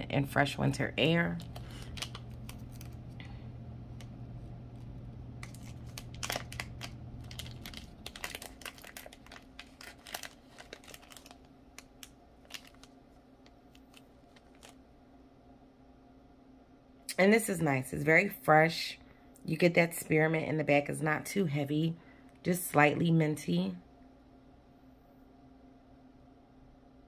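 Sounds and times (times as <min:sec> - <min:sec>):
low steady hum: 0:00.0 - 0:27.0
plastic packaging crinkling: 0:01.0 - 0:14.8.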